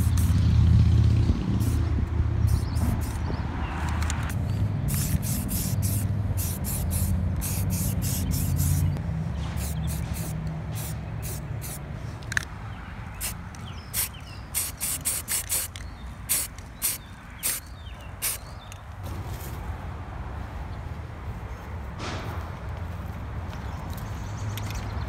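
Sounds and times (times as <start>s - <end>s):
aerosol can spraying: 0.0s - 0.4s, 4.9s - 9.0s, 9.6s - 11.8s, 13.2s - 18.4s.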